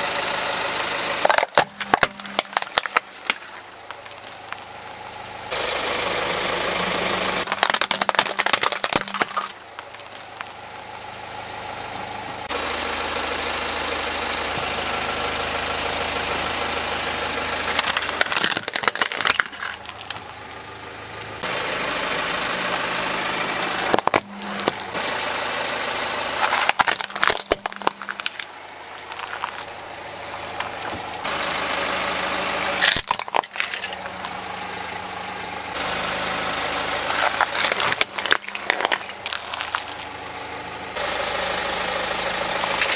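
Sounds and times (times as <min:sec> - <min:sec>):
car engine idling: 0:00.0 - 0:42.9
plastic toys cracking and crunching: 0:01.2 - 0:04.7, 0:07.4 - 0:10.6, 0:17.7 - 0:20.3, 0:23.6 - 0:25.0, 0:26.4 - 0:29.7, 0:32.8 - 0:34.4, 0:37.1 - 0:40.3, 0:42.6 - 0:42.9.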